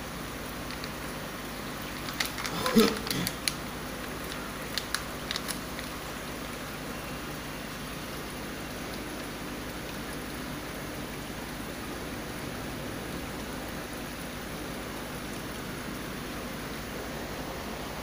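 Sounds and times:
aquarium water rushing: 0.0 - 18.0
faint clicks: 0.6 - 1.0, 1.9 - 6.0.

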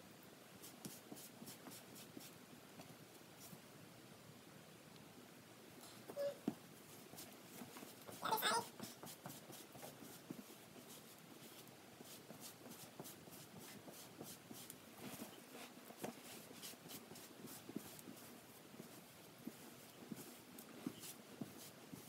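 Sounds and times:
rubber brush scratching dog fur: 7.0 - 22.0.

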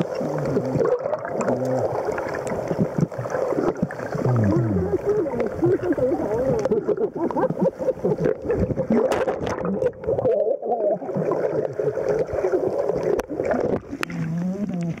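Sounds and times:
underwater sloshing and bubbling: 0.0 - 15.0.

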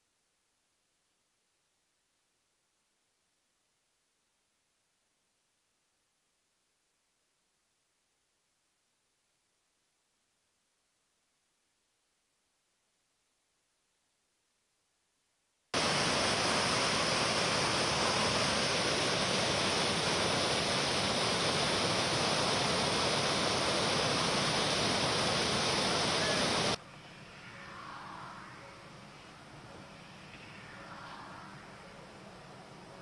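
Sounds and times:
floodwater rushing: 15.8 - 26.8.

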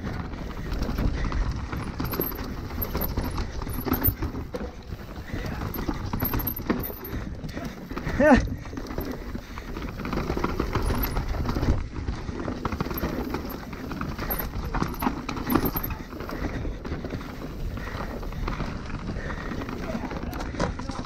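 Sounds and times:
bike rattling and knocking: 0.0 - 21.0
bike tyres rolling over dirt: 0.0 - 21.0.

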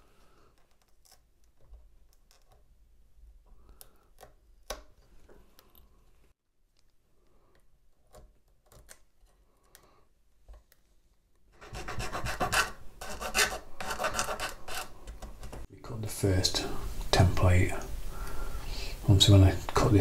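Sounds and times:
tool rasping on wood: 11.6 - 15.0.

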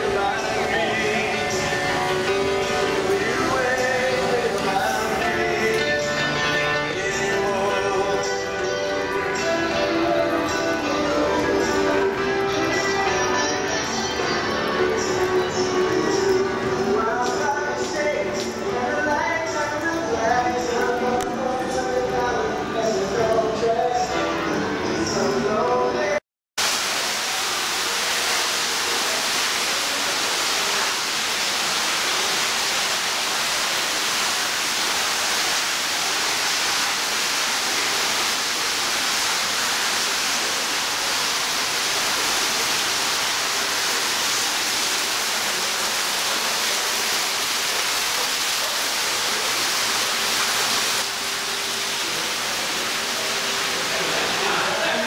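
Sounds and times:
indoor background hiss: 26.6 - 55.0.

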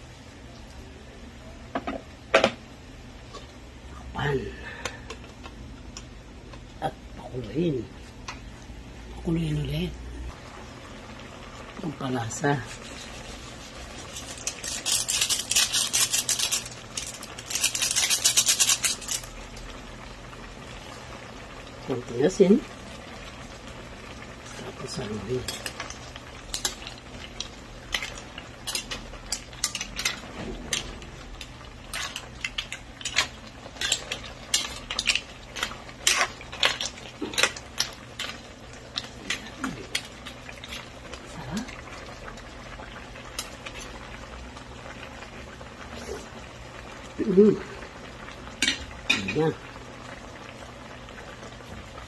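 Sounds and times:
granules sprinkling: 11.8 - 19.8, 24.5 - 41.8
seasoning sachet crinkling: 12.4 - 19.8.

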